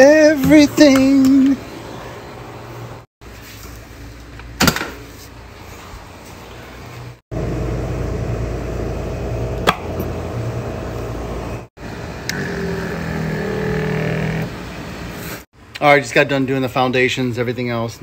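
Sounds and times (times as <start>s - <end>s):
electric pump humming: 7.3s - 15.0s.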